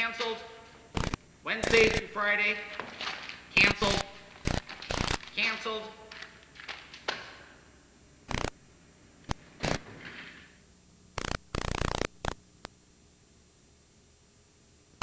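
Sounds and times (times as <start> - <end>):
sharp clicks and crackles: 1.0 - 2.1, 3.8 - 5.4, 8.3 - 8.6, 9.2 - 9.9, 11.2 - 12.8.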